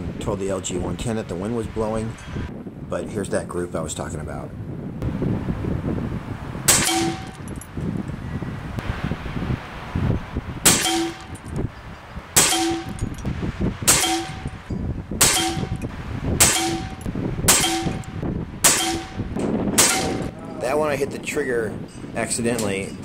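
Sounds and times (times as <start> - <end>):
air rifle pellets striking metal target: 6.7 - 7.5, 10.6 - 11.4, 12.4 - 13.2, 13.9 - 14.6, 15.2 - 20.3.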